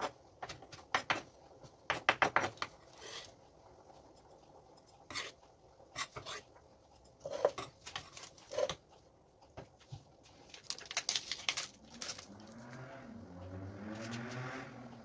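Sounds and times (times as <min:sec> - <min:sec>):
knife scraping cutting board: 0:02.4 - 0:03.3, 0:05.1 - 0:05.4, 0:06.0 - 0:06.5, 0:07.2 - 0:08.8.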